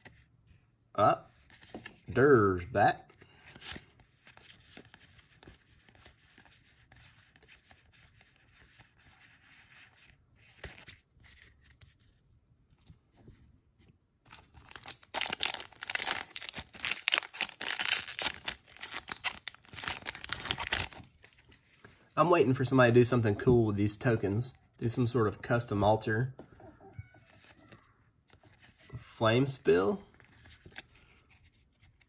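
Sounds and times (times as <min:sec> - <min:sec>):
foil wrapper tearing and crinkling: 0:14.3 - 0:21.1.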